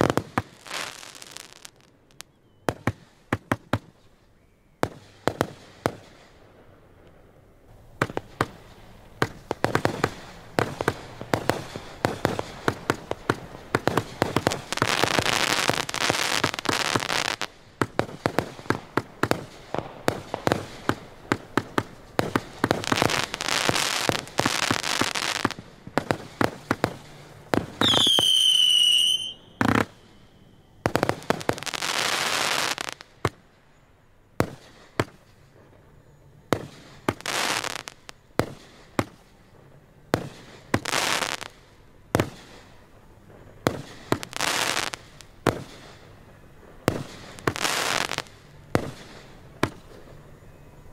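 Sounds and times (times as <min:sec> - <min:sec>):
fireworks bangs: 0:07.9 - 0:33.5, 0:40.1 - 0:50.4
whistling firework: 0:08.0 - 0:41.6, 0:42.2 - 0:50.9.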